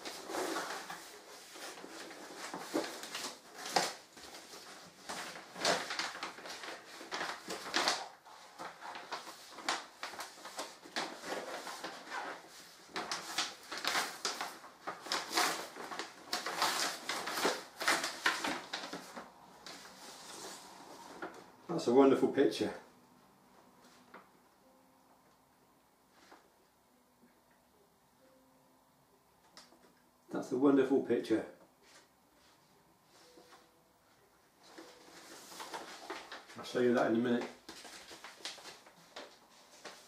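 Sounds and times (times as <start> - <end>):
paper and cardboard rustling: 0.0 - 21.5, 34.6 - 40.0.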